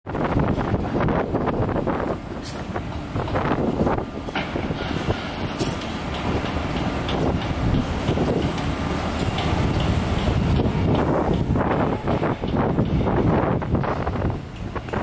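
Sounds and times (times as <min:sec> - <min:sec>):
diesel truck engines running: 0:00.1 - 0:15.0
knocks and clanks: 0:04.2 - 0:15.0.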